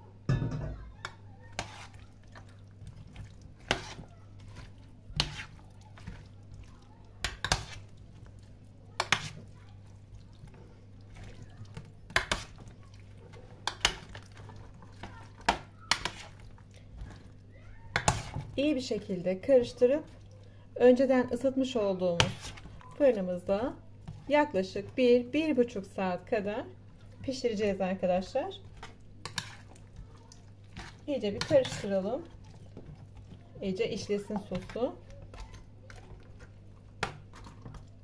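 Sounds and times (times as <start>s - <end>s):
knocks against metal tray: 0.3s - 0.8s
hands squelching wet food: 1.0s - 38.0s.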